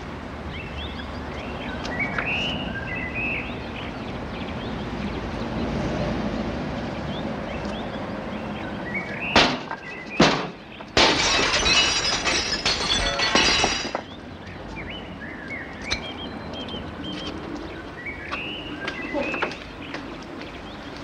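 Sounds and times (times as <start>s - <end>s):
glass window smashing: 9.4s - 14.1s.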